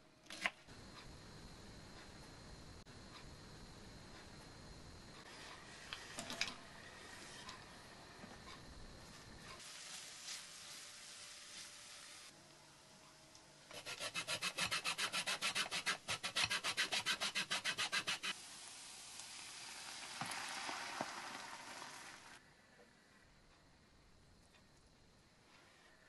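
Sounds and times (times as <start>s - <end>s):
cream poured into hot pan: 18.4s - 22.4s.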